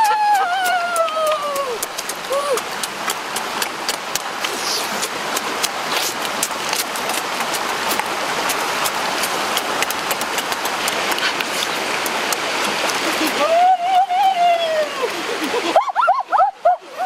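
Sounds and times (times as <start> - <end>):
eating with clicks and smacks: 0.0 - 13.4
rocky stream rushing: 0.0 - 17.0.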